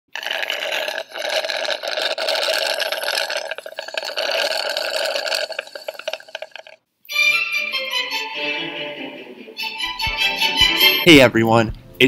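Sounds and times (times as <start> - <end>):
kettle boiling: 0.1 - 6.8.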